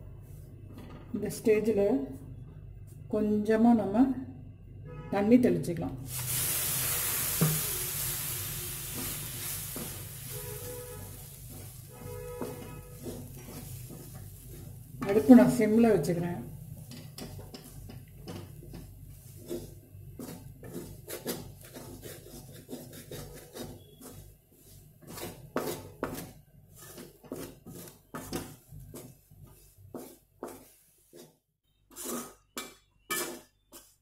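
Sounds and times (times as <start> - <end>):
metal ladle scraping metal pan: 6.2 - 15.5, 31.9 - 34.0.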